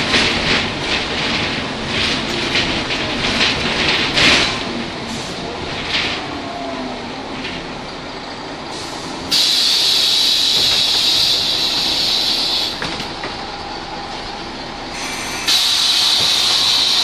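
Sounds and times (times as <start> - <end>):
bus engine running: 0.0 - 17.0
compressed air hiss: 8.7 - 12.8, 15.0 - 17.0.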